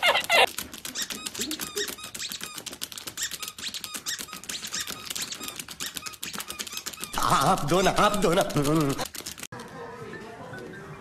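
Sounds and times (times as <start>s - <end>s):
dog claws tapping on touchscreen: 0.0s - 9.7s
short high squeaks: 0.1s - 8.3s.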